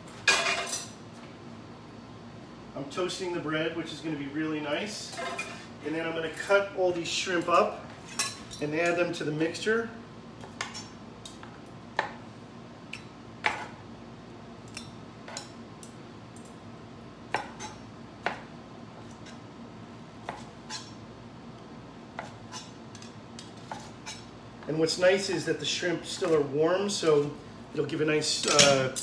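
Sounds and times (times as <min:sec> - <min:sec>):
steady low hum: 0:00.0 - 0:29.0
metal tongs clattering: 0:28.4 - 0:29.0.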